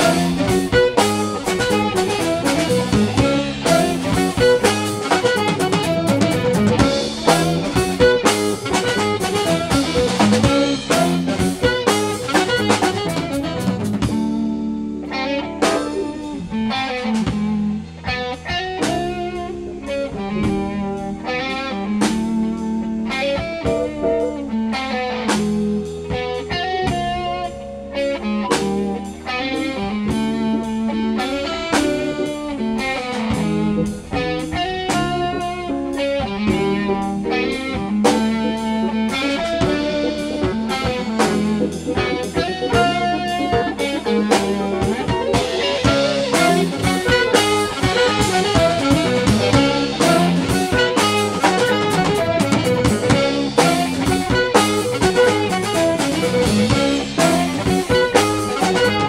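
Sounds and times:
electric guitar: 0:00.0 - 0:59.0
small jazz band playing: 0:00.0 - 0:59.0.

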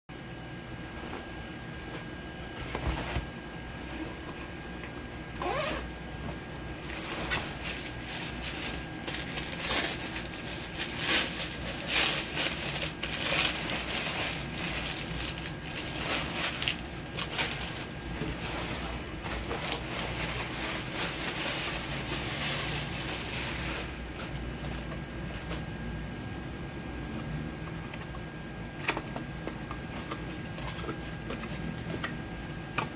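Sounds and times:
paper wrapping rustling and tearing: 0:05.4 - 0:25.6.

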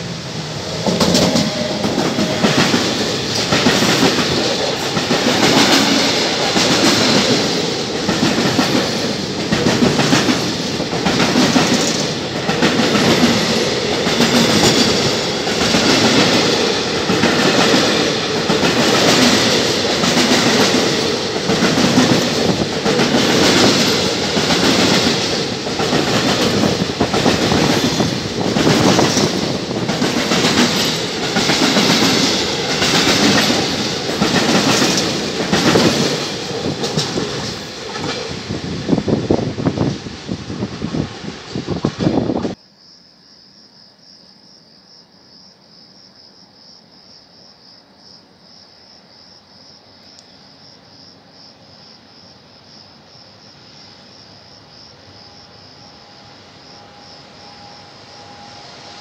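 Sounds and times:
electric locomotive passing: 0:00.0 - 0:42.6, 0:51.0 - 0:59.0
train wheels clickety-clack: 0:00.4 - 0:42.6.

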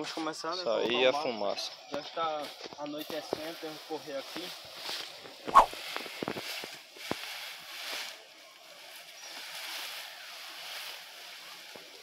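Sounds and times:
branches rustling and crackling: 0:02.1 - 0:12.0
sharp snaps: 0:05.5 - 0:05.7.

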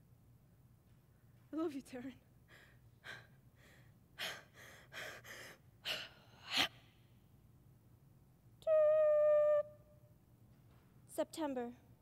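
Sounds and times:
woman gasping breaths: 0:02.5 - 0:06.8.

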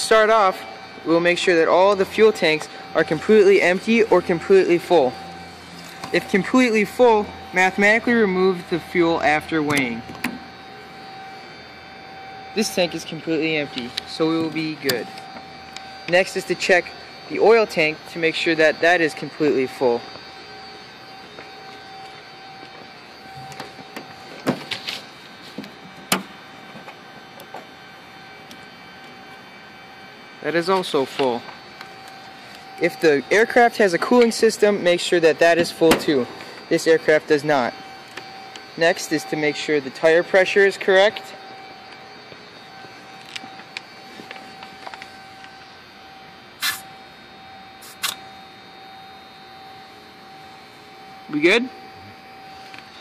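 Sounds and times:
steady hum: 0:00.0 - 0:53.0
air hissing from tire valve: 0:46.6 - 0:46.9, 0:47.8 - 0:48.2.

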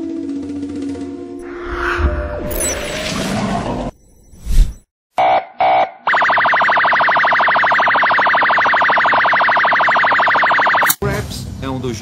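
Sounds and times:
electronic alarm tone: 0:03.9 - 0:10.9.

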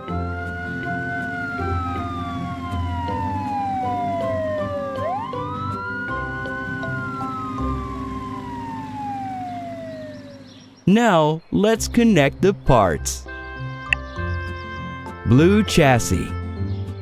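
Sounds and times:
police siren wailing: 0:00.0 - 0:10.8.

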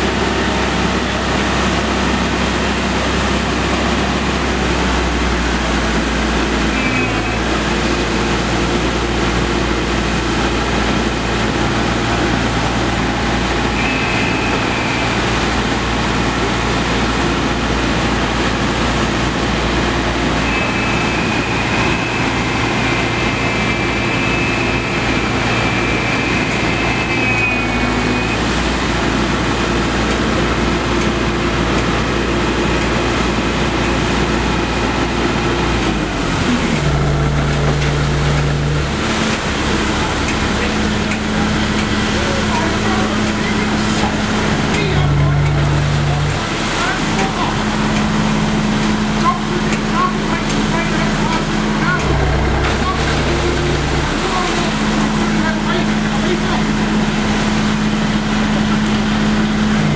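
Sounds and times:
water rushing and churning: 0:00.0 - 0:59.9
low hum: 0:33.3 - 0:59.9.

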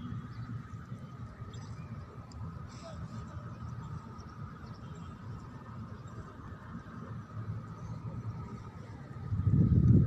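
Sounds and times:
steady low rumble: 0:07.5 - 0:10.0.

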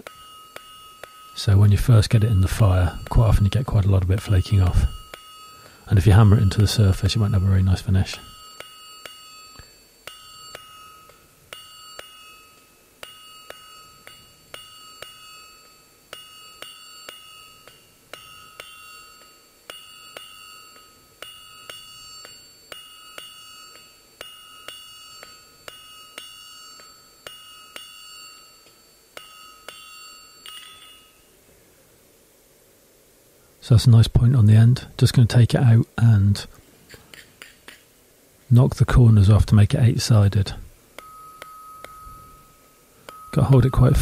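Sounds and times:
hammer striking steel on anvil: 0:00.0 - 0:31.3, 0:40.9 - 0:44.0
anvil ringing: 0:00.0 - 0:31.4, 0:40.9 - 0:44.0.

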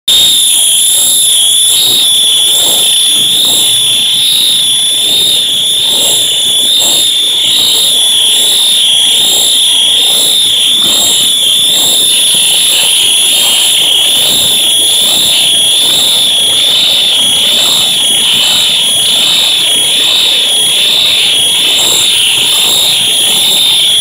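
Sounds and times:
fire alarms sounding: 0:00.0 - 0:24.0.

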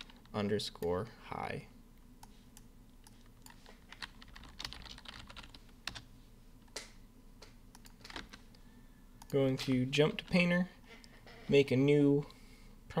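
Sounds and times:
low steady hum: 0:00.0 - 0:13.0
keyboard and mouse clicks: 0:06.6 - 0:08.4.

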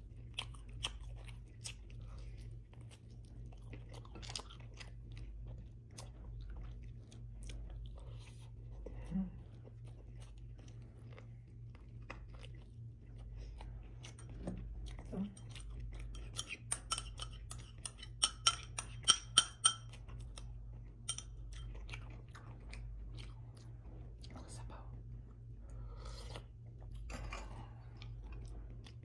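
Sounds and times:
soft chewing and mouth sounds: 0:00.0 - 0:29.0
tableware clinking on ceramic bowl: 0:16.3 - 0:20.0.

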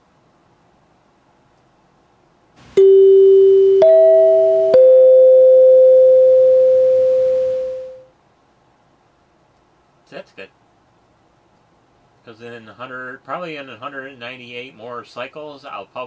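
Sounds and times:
three-note chime: 0:02.8 - 0:08.0.

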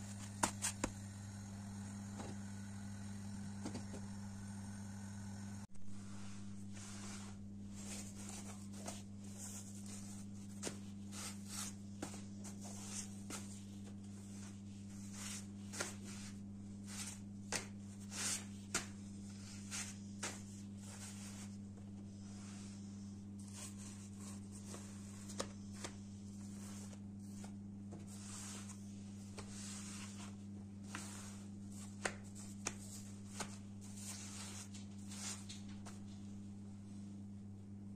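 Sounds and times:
steady low hum: 0:00.0 - 0:37.9
flatbreads rustling and flapping: 0:06.6 - 0:22.8.

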